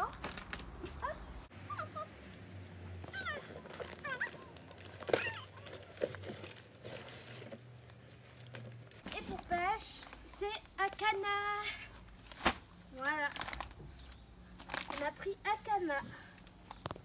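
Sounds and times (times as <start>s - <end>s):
cardboard box rummaging: 3.0s - 9.6s.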